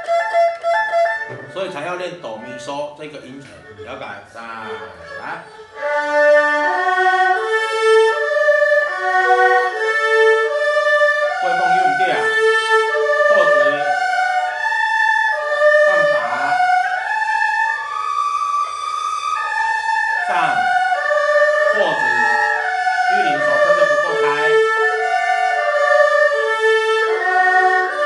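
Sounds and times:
erhu playing arpeggios: 0.0s - 28.0s.

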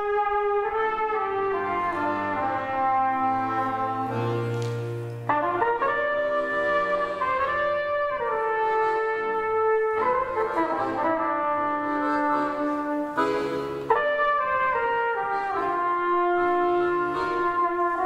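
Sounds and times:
accordion chords: 0.0s - 18.0s
trumpet melody: 0.0s - 18.0s.

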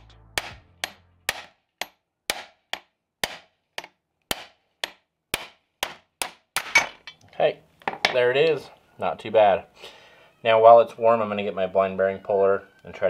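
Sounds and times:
hammer tapping metal: 0.4s - 7.2s.

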